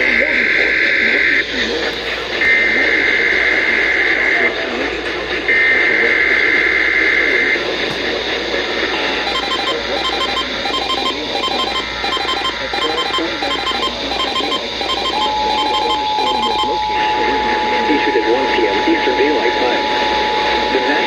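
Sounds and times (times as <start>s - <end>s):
radio static: 0.0s - 21.0s
two-tone attention signal: 9.2s - 18.8s
short repeating beeps: 9.3s - 16.8s.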